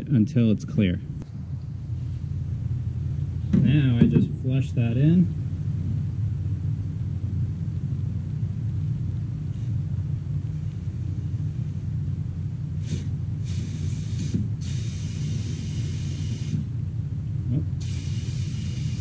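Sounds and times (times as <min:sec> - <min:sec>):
low machine rumble: 0:00.0 - 0:19.0
aerosol spray hissing: 0:12.8 - 0:16.6, 0:17.8 - 0:19.0.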